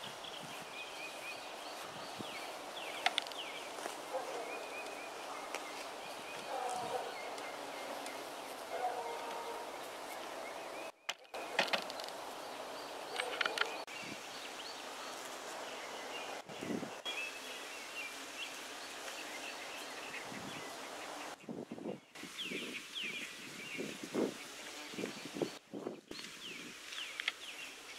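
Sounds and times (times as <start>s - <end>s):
bird chirps: 0.0s - 15.2s
bees humming: 2.1s - 13.9s.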